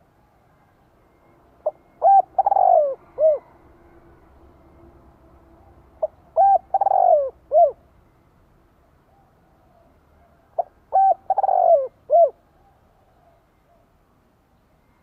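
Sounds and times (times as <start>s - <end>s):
dove cooing: 1.6s - 3.6s, 5.9s - 7.9s, 9.1s - 13.9s.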